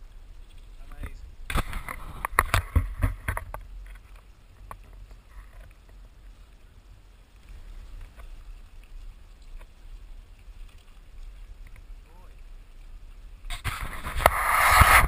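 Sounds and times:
faint clicks: 7.4s - 14.4s.

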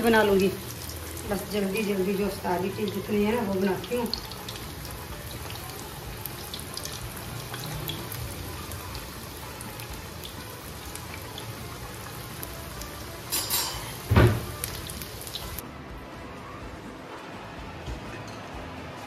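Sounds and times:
food deep-frying in oil: 0.0s - 15.6s
loud thump: 14.1s - 14.6s.

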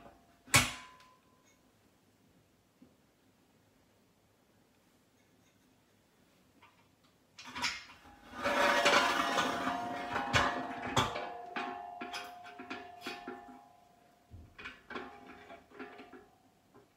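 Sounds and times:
metal scraping against metal: 7.5s - 16.9s
metallic ringing tone: 8.1s - 14.3s
metal bollard clunk: 8.6s - 16.2s.

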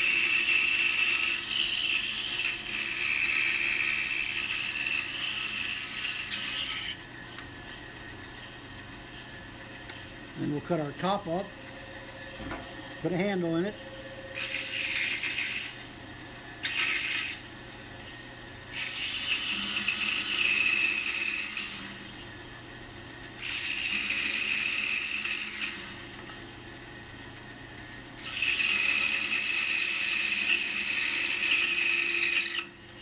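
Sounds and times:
scroll saw cutting wood: 0.0s - 7.0s, 14.3s - 15.8s, 16.6s - 17.5s, 18.7s - 22.0s, 23.4s - 25.9s, 28.2s - 32.8s
saw motor hum: 0.0s - 22.5s, 23.2s - 26.2s, 28.2s - 33.0s.

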